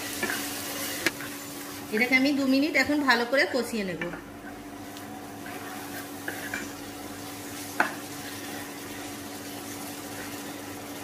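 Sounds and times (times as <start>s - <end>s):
prawns sizzling in a pan: 0.0s - 3.4s, 4.8s - 11.0s.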